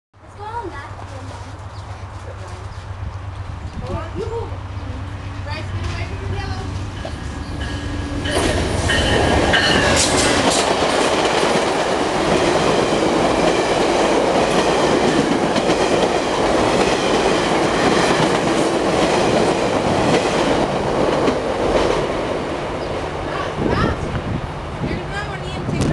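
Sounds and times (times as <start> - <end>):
train passing at speed: 0.3 - 25.9
wheels clacking over rail joints: 5.4 - 22.9.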